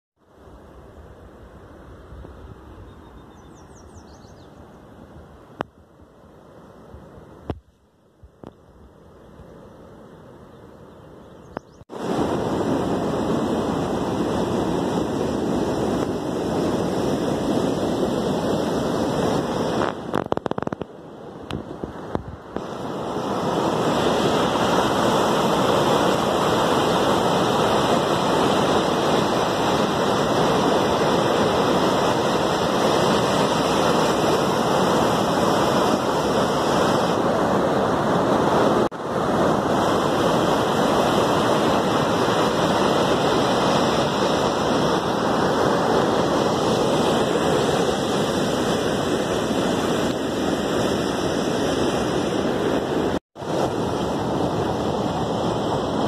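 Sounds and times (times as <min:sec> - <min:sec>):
white water rushing: 0:11.9 - 0:56.0.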